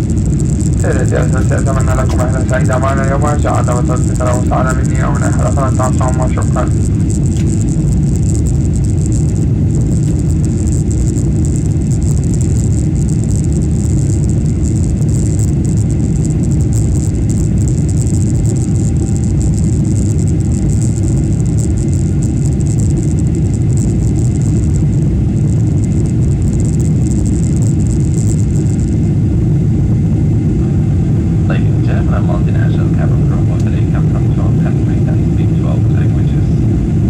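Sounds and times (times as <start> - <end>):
airplane cabin roar: 0.0 - 37.0.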